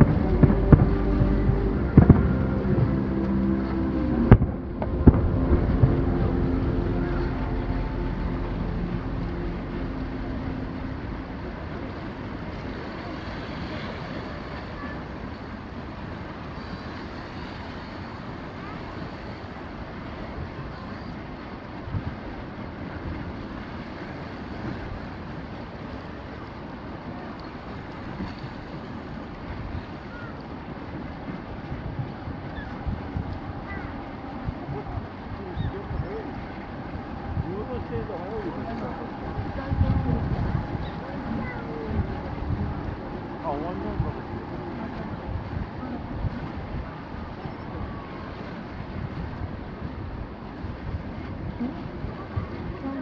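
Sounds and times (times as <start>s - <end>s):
faint distant voices: 0.0s - 16.0s, 32.4s - 49.9s
steady rushing noise: 0.0s - 53.0s
surf: 0.0s - 53.0s
wind: 0.0s - 53.0s.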